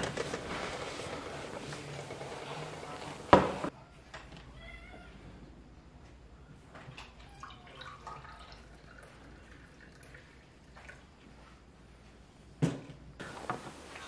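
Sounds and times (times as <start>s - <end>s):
drink pouring into a glass: 7.4s - 11.0s.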